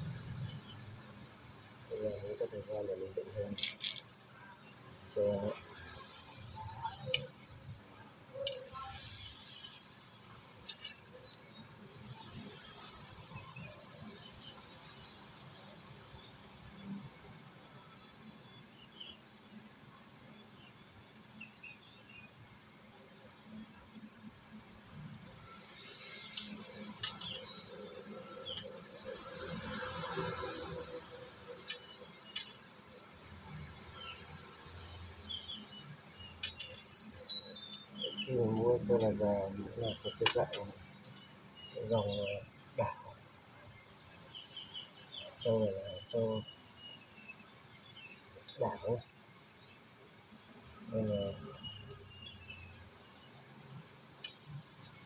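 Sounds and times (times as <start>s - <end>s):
faint steady background noise: 0.0s - 55.0s
insect chirring: 0.0s - 55.0s
sharp clicks: 26.3s - 27.6s, 36.4s - 37.8s.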